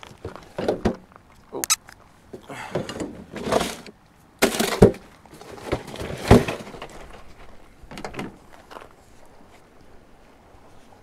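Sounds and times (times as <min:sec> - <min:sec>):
scraping rustles on plastic cooler: 0:02.8 - 0:07.6.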